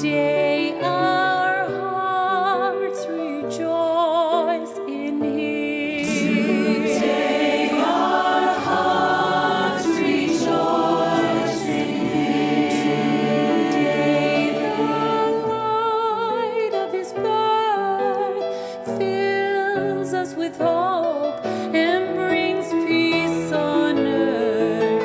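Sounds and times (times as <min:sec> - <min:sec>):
choir singing: 0:00.0 - 0:01.7, 0:05.6 - 0:17.3.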